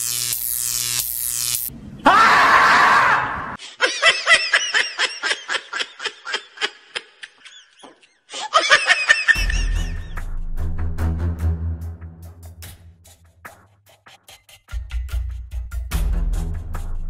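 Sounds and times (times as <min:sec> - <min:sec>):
person laughing: 0:03.6 - 0:10.2
music with heavy bass: 0:09.4 - 0:13.4.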